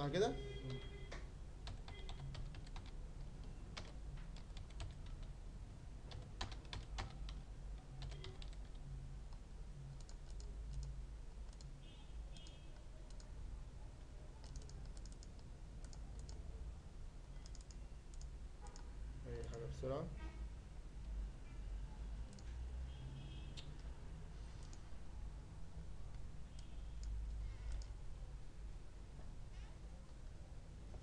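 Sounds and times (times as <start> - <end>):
low steady hum: 0.0 - 31.0
computer keyboard typing: 1.6 - 5.4, 6.1 - 13.4, 14.3 - 16.5, 17.4 - 19.7, 24.6 - 24.9, 26.1 - 28.0.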